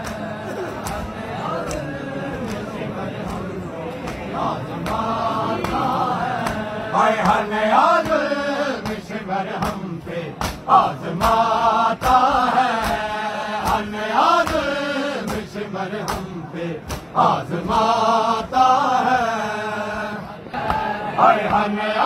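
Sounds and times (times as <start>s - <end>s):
chest-beating slaps: 0.0s - 7.4s, 9.6s - 17.2s
men chanting a lament: 0.0s - 22.0s.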